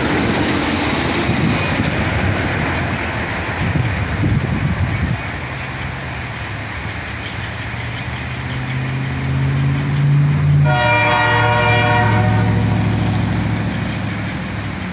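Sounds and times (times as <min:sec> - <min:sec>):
diesel locomotive engine drone: 0:00.0 - 0:14.9
locomotive air horn blast: 0:10.4 - 0:13.8.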